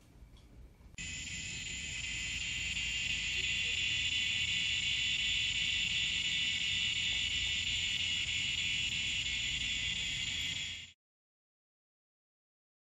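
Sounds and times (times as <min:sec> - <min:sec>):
high-pitched insect chorus: 0:01.0 - 0:11.0.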